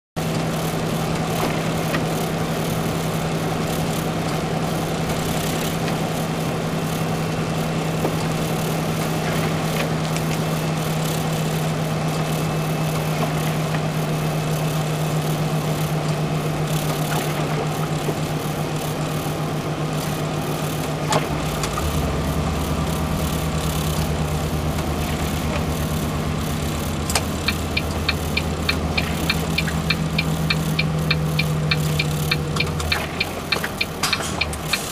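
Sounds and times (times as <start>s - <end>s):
road and tyre noise: 0.2s - 34.9s
truck engine drone: 0.2s - 34.9s
regular ticking: 19.9s - 34.9s.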